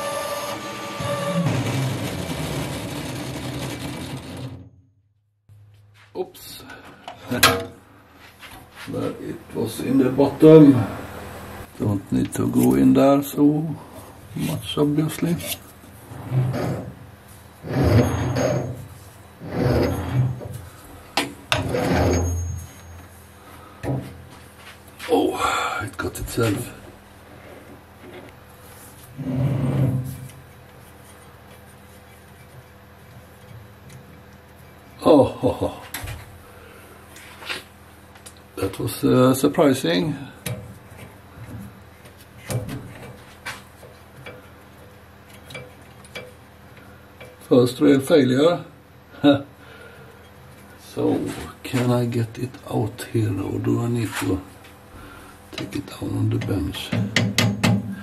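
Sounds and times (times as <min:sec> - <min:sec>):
lathe boring bar cutting steel: 0:00.0 - 0:04.6.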